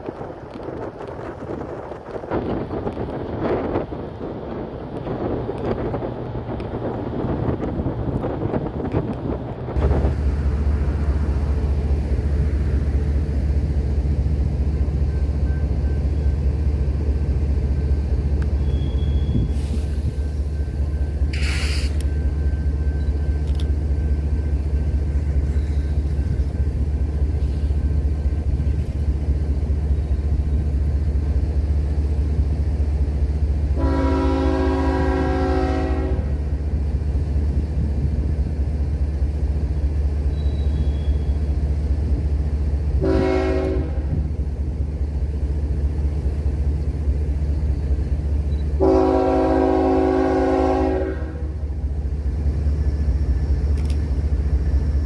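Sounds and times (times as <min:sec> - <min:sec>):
diesel locomotive rumbling: 0:00.0 - 0:55.0
brief hiss: 0:19.4 - 0:20.4, 0:21.3 - 0:22.1
locomotive horn chord: 0:33.8 - 0:36.4, 0:43.0 - 0:44.2, 0:48.8 - 0:51.6.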